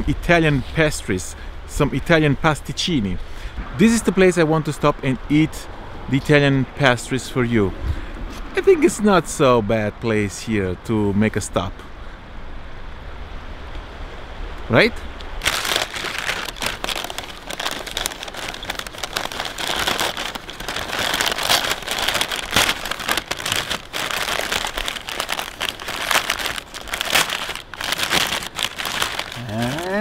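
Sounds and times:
wrapping paper crinkling and tearing: 0:15.4 - 0:30.0.

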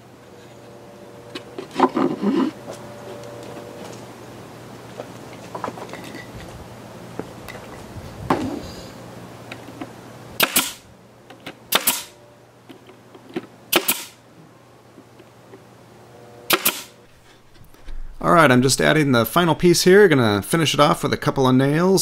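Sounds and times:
nail gun firing into plywood: 0:10.4 - 0:10.8, 0:11.7 - 0:12.2, 0:13.7 - 0:14.2, 0:16.5 - 0:17.0.

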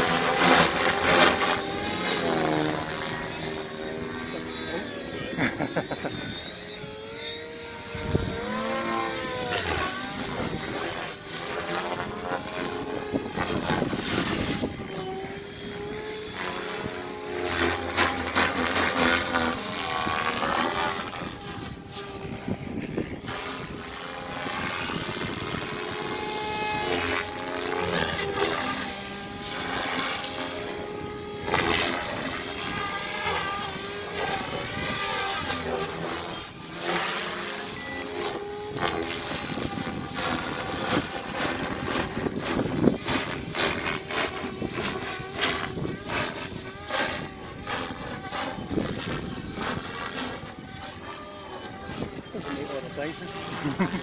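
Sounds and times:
rc helicopter rotor and motor whine: 0:00.0 - 0:54.0.

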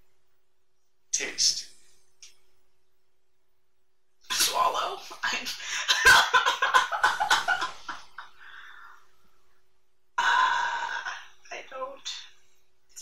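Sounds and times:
people laughing: 0:05.2 - 0:08.6.

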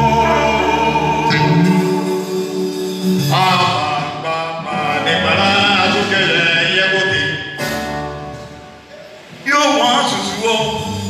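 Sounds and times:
voices singing a hymn: 0:00.0 - 0:07.4.

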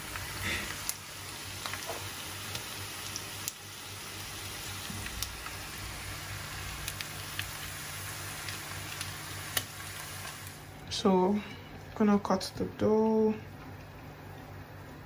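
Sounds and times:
meat sizzling in a frying pan: 0:00.0 - 0:10.8.

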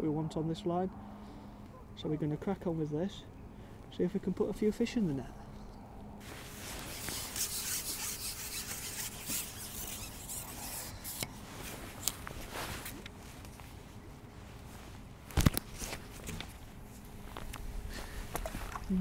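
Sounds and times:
fishing pole rubbing and scraping: 0:06.2 - 0:13.0.

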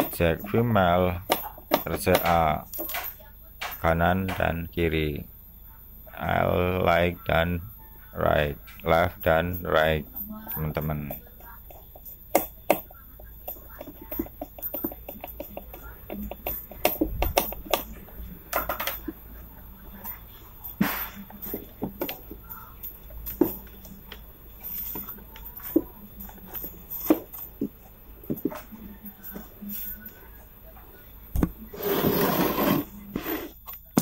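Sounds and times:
handling clicks and knocks: 0:01.2 - 0:04.5.

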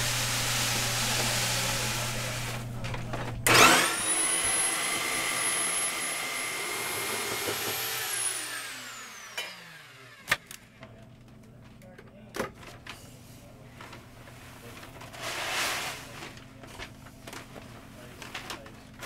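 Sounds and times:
grain mill grinding: 0:00.0 - 0:02.6, 0:03.5 - 0:10.1
motor whine: 0:00.0 - 0:10.3.

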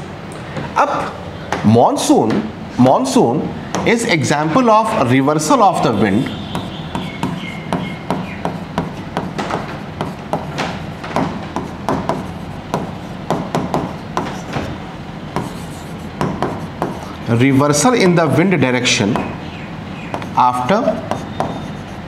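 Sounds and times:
marker squeak: 0:05.7 - 0:09.4, 0:13.9 - 0:14.7, 0:15.4 - 0:17.2, 0:19.1 - 0:22.0
marker pen writing on whiteboard: 0:05.7 - 0:17.4, 0:20.1 - 0:22.0.

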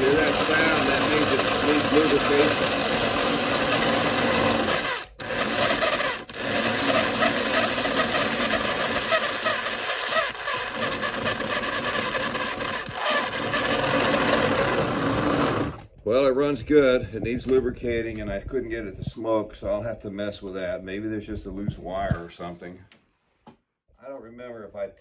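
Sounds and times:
toy train motor and gears running: 0:00.0 - 0:15.8.

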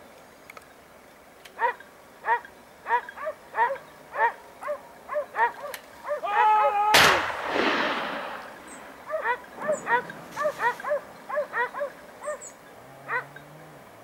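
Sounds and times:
dog barking and baying: 0:01.6 - 0:06.9, 0:09.0 - 0:13.4
gunshot echoing: 0:06.9 - 0:10.8.

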